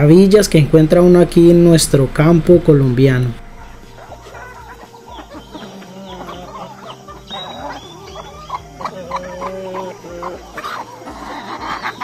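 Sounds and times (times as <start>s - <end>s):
steady low hum: 0.0s - 11.2s
chickens clucking: 3.4s - 12.0s.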